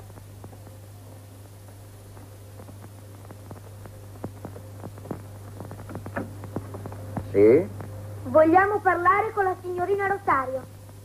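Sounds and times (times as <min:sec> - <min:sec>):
old film soundtrack hum and crackle: 0:00.0 - 0:11.0
footsteps on hard floor: 0:04.3 - 0:07.3.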